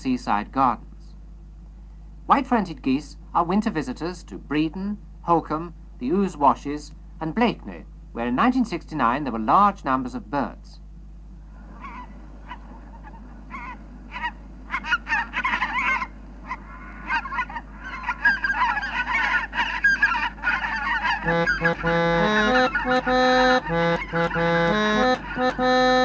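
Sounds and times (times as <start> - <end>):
geese honking: 11.5 - 26.0
music with held notes: 21.2 - 26.0.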